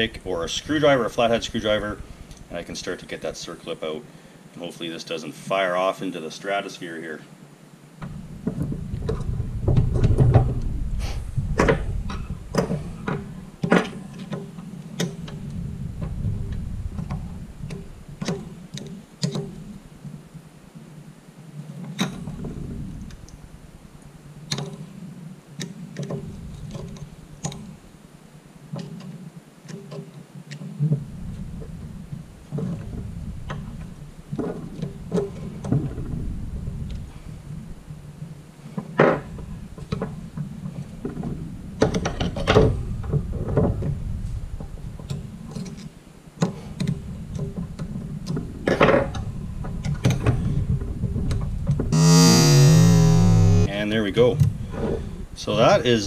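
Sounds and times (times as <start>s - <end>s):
low rumble: 0.0s - 3.3s, 52.0s - 53.7s.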